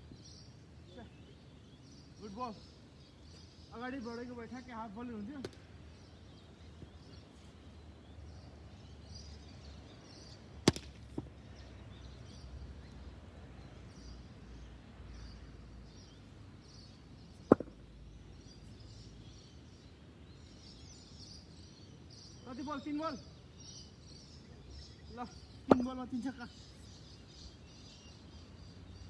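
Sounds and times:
outdoor wind noise: 0:00.0 - 0:22.4
cricket bat hitting ball: 0:10.6 - 0:11.3, 0:17.4 - 0:17.8, 0:25.7 - 0:26.0.

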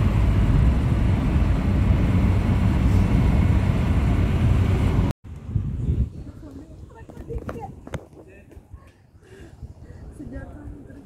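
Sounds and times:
car interior road rumble: 0:00.0 - 0:05.1.

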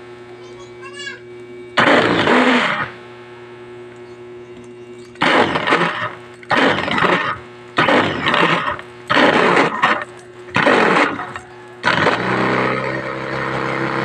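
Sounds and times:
steady low hum: 0:00.0 - 0:14.0
food chopper blades whirring: 0:01.8 - 0:03.0, 0:05.1 - 0:14.0.

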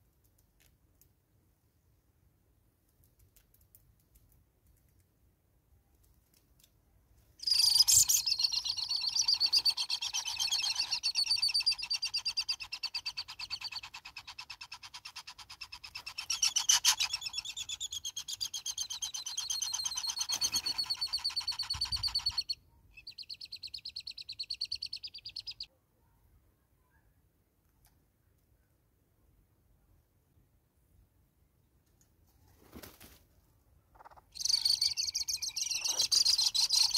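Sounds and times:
hornbill calling: 0:07.5 - 0:22.4.

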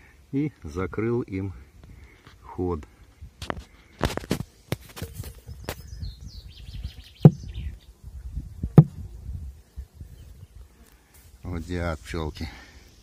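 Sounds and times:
faint bird chirps: 0:05.1 - 0:08.6
sharp loud thumps: 0:07.2 - 0:07.5, 0:08.6 - 0:09.1.

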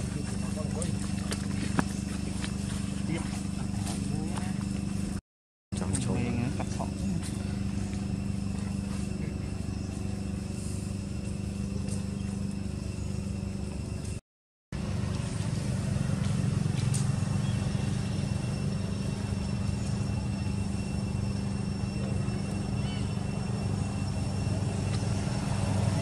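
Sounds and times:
low motor hum: 0:00.0 - 0:05.2, 0:05.8 - 0:14.2, 0:14.8 - 0:26.0.

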